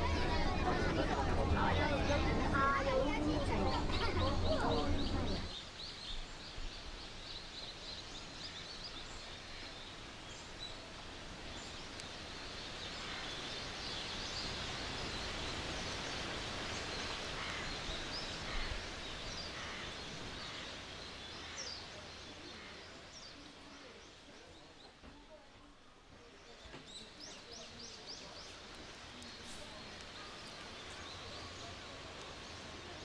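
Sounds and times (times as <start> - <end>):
steady rushing noise: 0.0 - 5.6
small birds chirping: 0.0 - 33.0.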